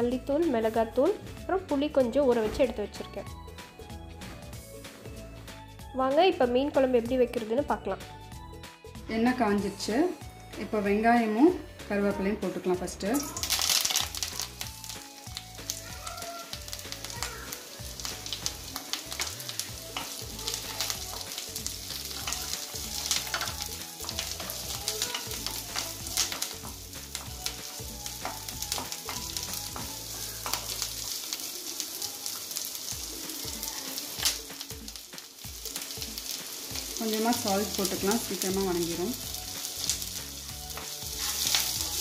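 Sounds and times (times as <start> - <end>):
onions sizzling in hot oil: 10.6 - 42.0
wooden spatula scraping pan: 40.8 - 42.0.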